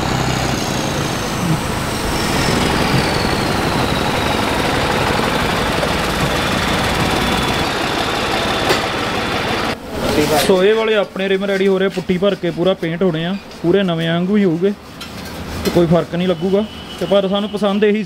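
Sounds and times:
tractor diesel engine running: 0.0s - 9.8s.

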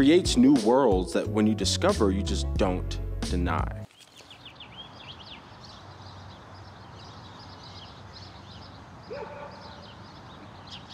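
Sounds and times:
small birds chirping: 3.8s - 10.9s
loud pitched bird call: 4.2s - 10.9s.

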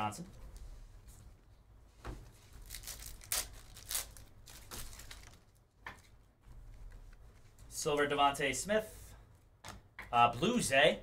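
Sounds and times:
cards rustling against wrapper: 2.6s - 5.6s.

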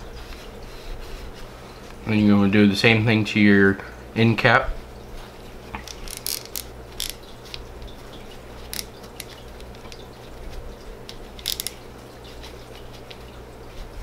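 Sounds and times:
paper towel crinkling and rubbing: 0.0s - 2.2s, 6.8s - 14.0s.

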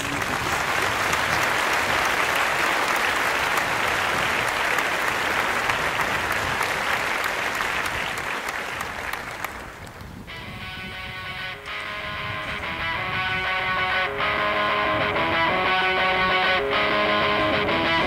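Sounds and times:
crowd applauding: 0.0s - 10.1s
guitar music: 10.3s - 18.0s.

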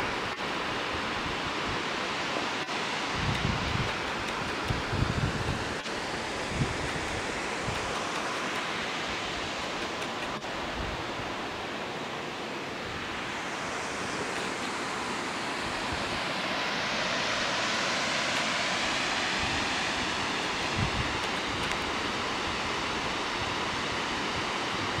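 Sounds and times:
waterfall rushing: 0.0s - 25.0s
wind buffeting microphone: 3.1s - 5.8s, 20.5s - 21.9s.

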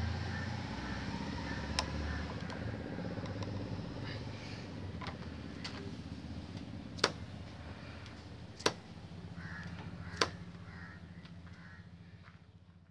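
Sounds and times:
faint crow calls: 0.0s - 12.9s
motorcycle engine idling: 0.0s - 12.9s
sharp clicks: 3.2s - 3.7s.

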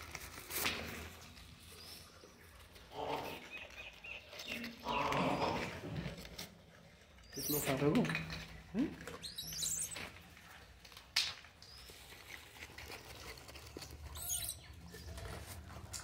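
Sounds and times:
plastic bag crinkling: 0.0s - 2.7s, 6.1s - 16.0s.

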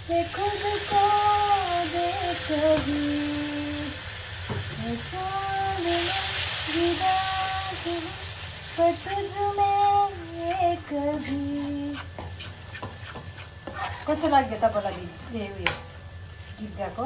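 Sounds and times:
high voice singing unaccompanied: 0.0s - 4.0s, 4.7s - 8.2s, 8.8s - 12.1s
hiss: 0.0s - 10.0s.

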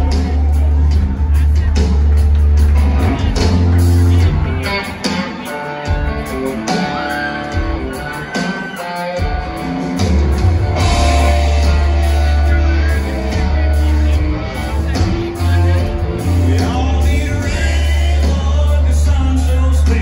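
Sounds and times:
live rock band playing: 0.0s - 20.0s
person singing: 10.7s - 20.0s.

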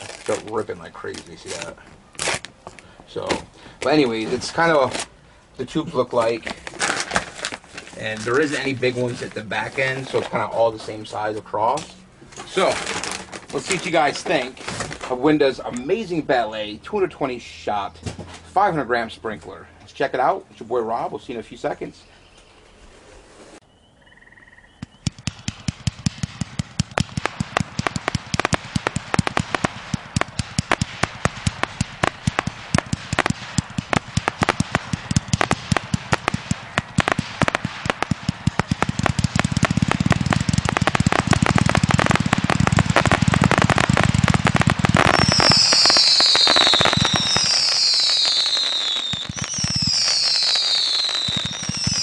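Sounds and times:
firework cake popping rapidly: 0.0s - 2.5s, 24.8s - 52.0s
whistling firework shots: 24.8s - 52.0s.

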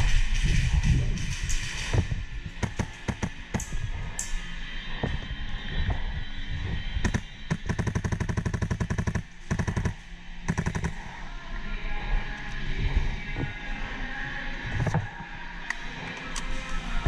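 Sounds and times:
airsoft rifle firing: 2.6s - 3.7s, 7.0s - 11.1s.

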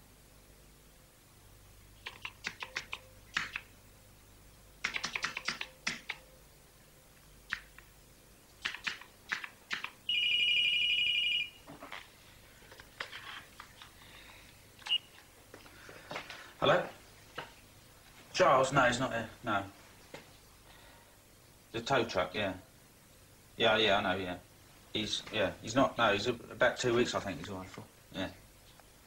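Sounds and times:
computer keyboard typing: 2.0s - 3.7s, 4.8s - 6.2s, 8.6s - 10.0s
telephone electronic ring: 10.1s - 11.6s.

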